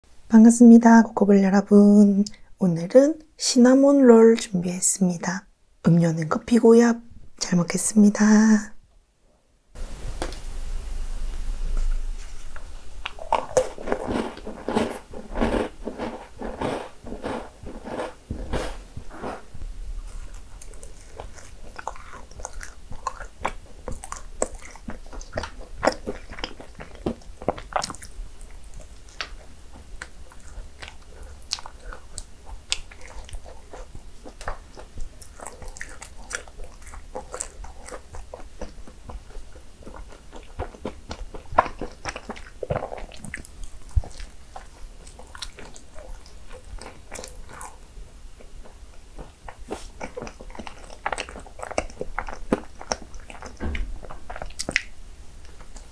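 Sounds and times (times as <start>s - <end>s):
person chewing: 11.3s - 55.9s.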